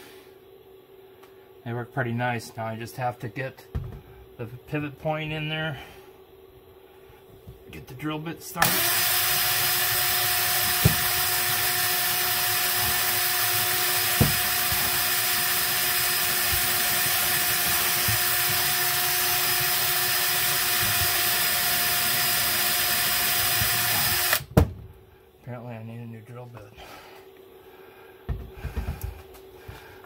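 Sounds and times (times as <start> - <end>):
cordless drill boring sheet metal: 8.6 - 24.5.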